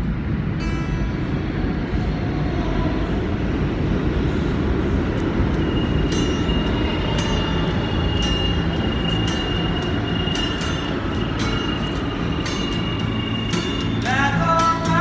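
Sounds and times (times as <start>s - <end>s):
subway train rumbling: 0.0s - 15.0s
acoustic guitar strummed: 5.2s - 15.0s
high wheel squeal: 5.2s - 15.0s.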